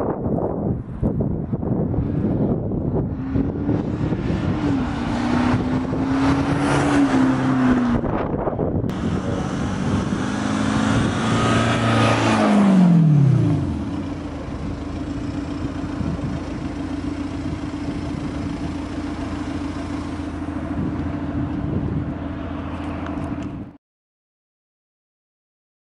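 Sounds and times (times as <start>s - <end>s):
pickup truck engine note: 1.5s - 23.7s
truck engine idling: 13.2s - 23.7s.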